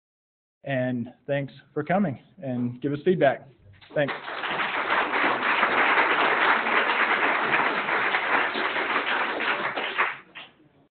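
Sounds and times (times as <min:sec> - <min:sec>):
crowd applauding: 0:03.9 - 0:10.5.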